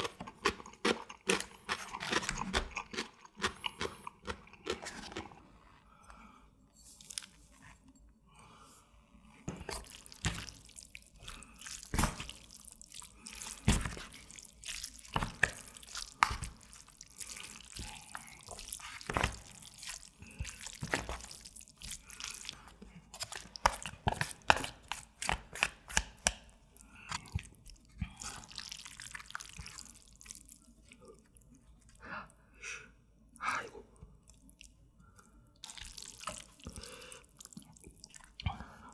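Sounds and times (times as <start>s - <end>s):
wet squelching of sauced noodles: 6.1s - 8.6s, 9.4s - 32.0s, 34.2s - 38.9s.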